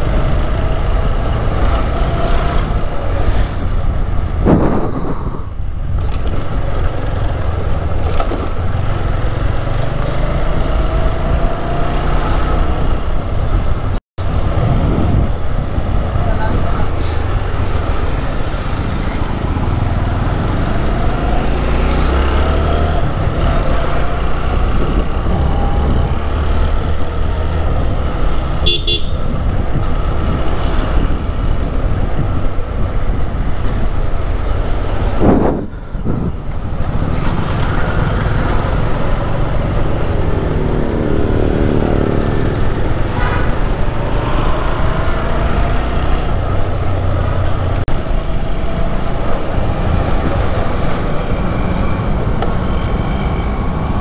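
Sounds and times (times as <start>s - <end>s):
road and wind noise: 0.0s - 54.0s
vehicle horns tooting: 28.6s - 29.4s.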